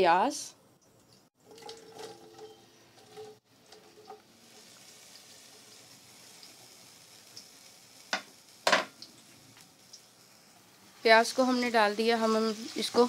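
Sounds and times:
onions sizzling in a pan: 0:02.6 - 0:13.0.

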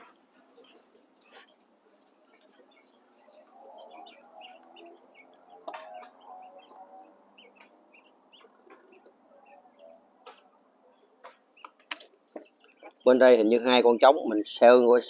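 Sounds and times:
quail chirping: 0:00.0 - 0:14.4
sharp clicks: 0:11.6 - 0:12.4.

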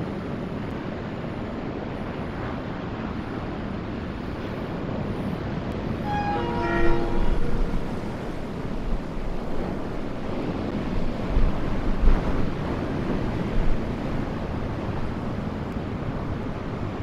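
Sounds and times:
ocean surf: 0:00.0 - 0:17.0
wind buffeting microphone: 0:00.0 - 0:17.0
locomotive horn blast: 0:05.9 - 0:09.4.

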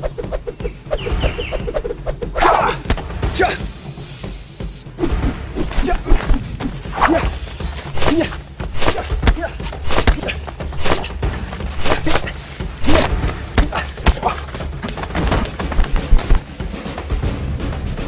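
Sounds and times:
punch and kick impacts: 0:05.0 - 0:11.2, 0:11.8 - 0:14.4.

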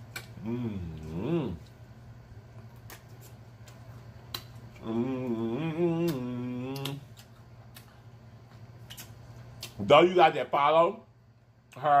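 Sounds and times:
man moaning mmm: 0:00.4 - 0:01.7, 0:04.8 - 0:07.0
lip-smacking clicks: 0:03.6 - 0:04.6, 0:08.8 - 0:09.8.

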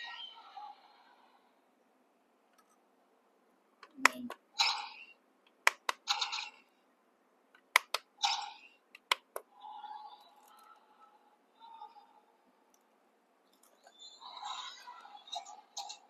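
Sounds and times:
plastic button clicks: 0:07.8 - 0:08.0.

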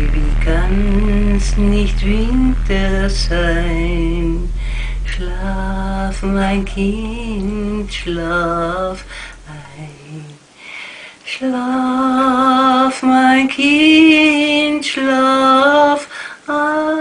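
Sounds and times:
low steady drone: 0:00.0 - 0:10.4.

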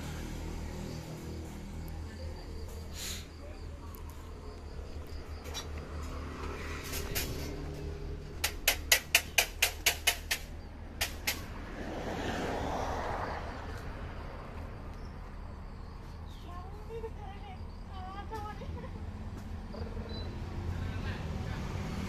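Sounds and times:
sharp taps: 0:08.4 - 0:11.4.

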